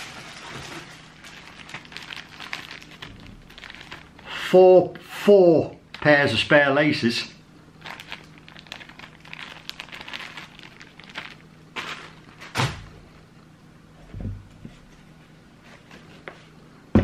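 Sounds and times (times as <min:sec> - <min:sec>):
plastic bag crinkling: 0:00.0 - 0:04.3, 0:07.8 - 0:12.8.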